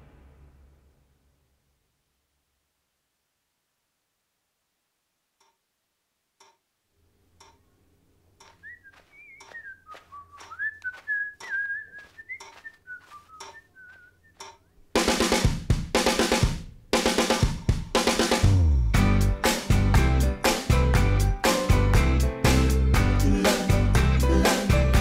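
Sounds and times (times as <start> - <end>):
ticking: 6.4 - 14.9
person whistling a slow tune: 8.5 - 14.6
drum kit beat: 14.4 - 25.0.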